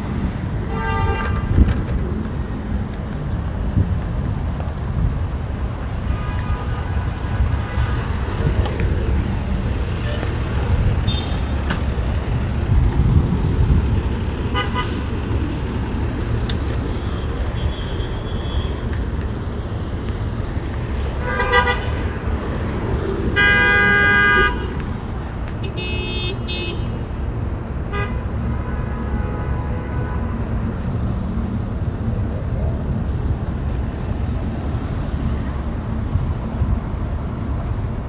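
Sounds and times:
traffic engine rumble: 0:00.0 - 0:38.0
vehicle horn: 0:00.7 - 0:01.5, 0:14.5 - 0:15.0, 0:17.1 - 0:18.8, 0:21.2 - 0:22.0, 0:23.3 - 0:24.8, 0:25.6 - 0:26.9.

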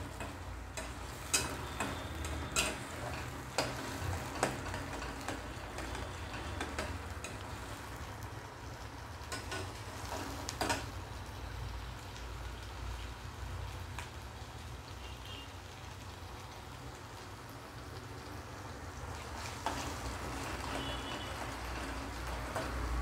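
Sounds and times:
spatula scraping and clicking pan: 0:00.0 - 0:08.0, 0:09.2 - 0:11.0
paste sizzling in oil: 0:00.0 - 0:23.0.

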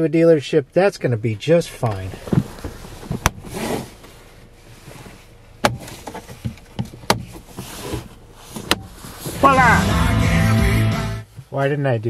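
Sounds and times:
soft rustling: 0:01.8 - 0:09.5.

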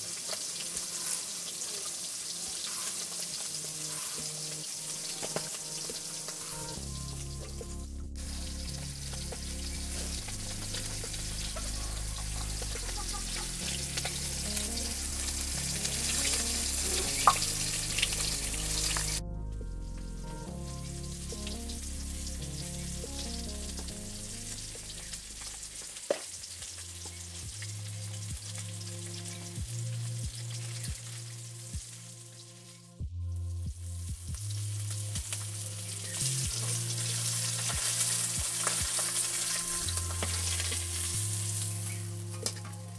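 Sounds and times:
food sizzling in oil: 0:00.0 - 0:07.3, 0:08.2 - 0:19.2, 0:21.8 - 0:32.7, 0:34.4 - 0:42.8
background music with slow bass: 0:00.0 - 0:42.9.

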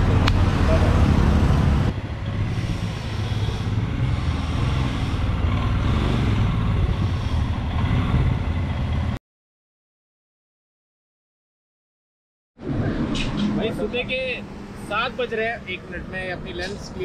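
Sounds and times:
motorcycle engine rumbling: 0:00.0 - 0:09.2
road and wind noise: 0:00.0 - 0:09.2, 0:12.6 - 0:17.0.

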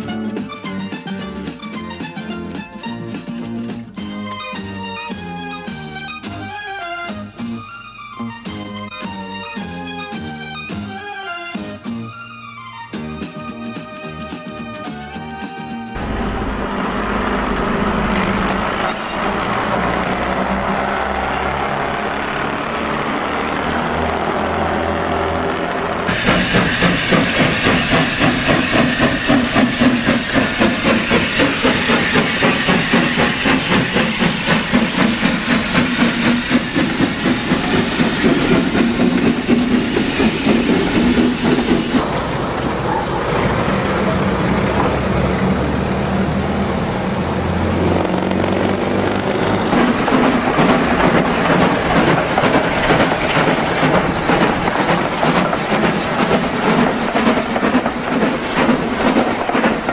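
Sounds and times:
model trains running: 0:16.0 - 0:59.9.

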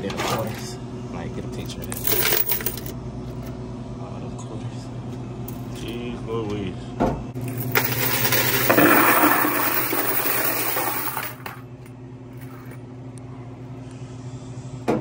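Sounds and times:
coins pouring and jangling: 0:01.8 - 0:02.9, 0:07.4 - 0:11.6, 0:12.4 - 0:12.8.

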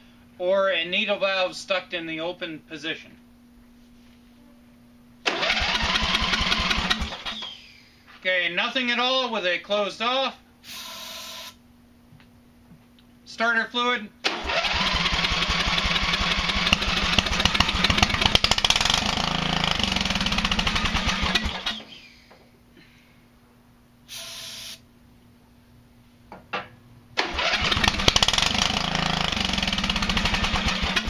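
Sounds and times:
lawn mower engine cranking: 0:05.3 - 0:07.4, 0:14.3 - 0:21.9, 0:27.2 - 0:31.0
spray hiss: 0:24.1 - 0:24.8.

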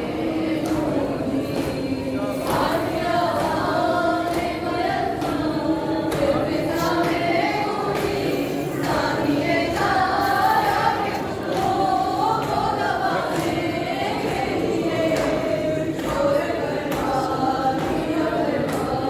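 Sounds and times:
group of voices chanting: 0:00.0 - 0:19.0.

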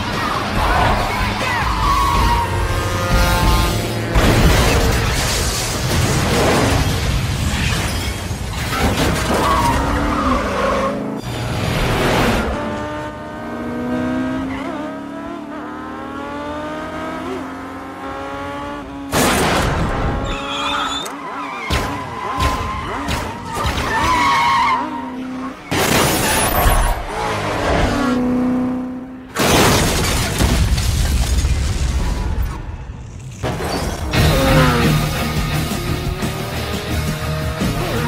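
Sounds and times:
tyres skidding: 0:00.0 - 0:12.9, 0:18.1 - 0:28.6
motorcycle engine revving: 0:02.1 - 0:04.2, 0:09.9 - 0:19.1, 0:34.1 - 0:38.0
music: 0:34.1 - 0:38.0.

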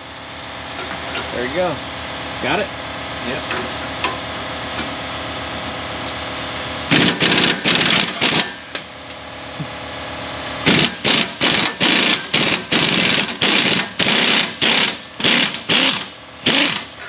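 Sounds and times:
steady hum: 0:00.0 - 0:17.0
impact wrench hammering: 0:06.9 - 0:09.4, 0:10.7 - 0:17.0.

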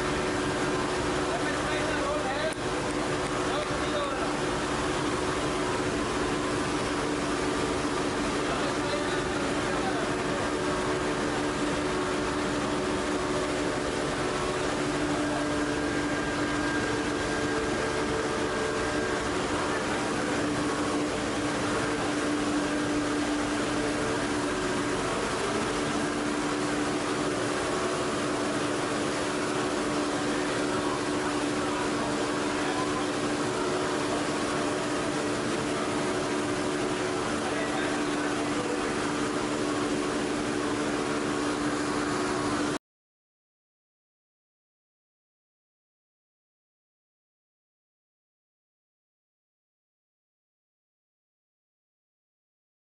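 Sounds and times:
machine drone with hum tones: 0:00.0 - 0:42.8.

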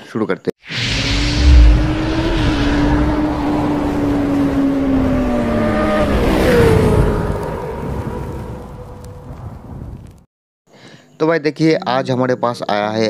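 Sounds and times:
motorcycle engine: 0:01.2 - 0:08.6.

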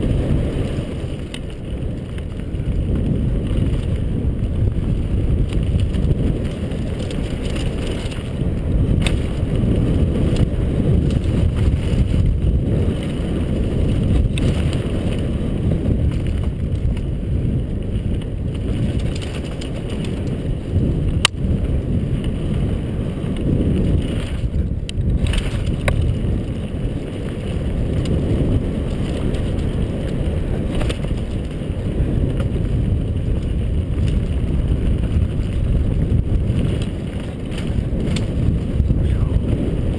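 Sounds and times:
sharp clicks from bike: 0:00.0 - 0:39.9
wind rumble on microphone: 0:00.0 - 0:39.9
tyre and frame rattle: 0:00.3 - 0:17.5, 0:18.2 - 0:21.0.

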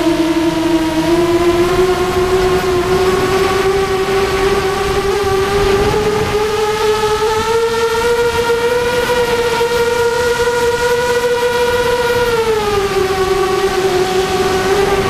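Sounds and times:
model aircraft motor whine: 0:00.0 - 0:15.0
air rushing past: 0:01.4 - 0:07.8.

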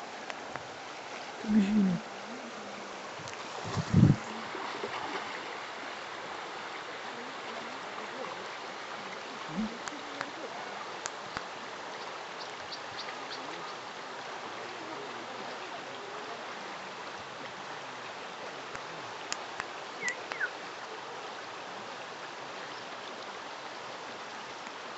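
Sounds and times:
river running over stones: 0:00.0 - 0:24.9.

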